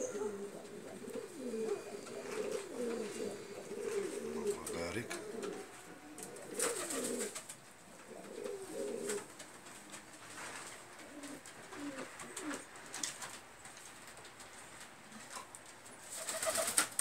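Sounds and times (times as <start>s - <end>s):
pigeons cooing: 0.0s - 13.4s, 15.0s - 17.0s
wing flaps: 6.2s - 7.6s, 16.1s - 17.0s.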